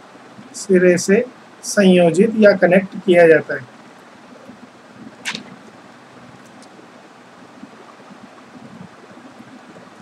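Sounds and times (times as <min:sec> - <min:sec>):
room noise and microphone hiss: 0:00.0 - 0:10.0
brief sharp hiss: 0:05.2 - 0:05.6.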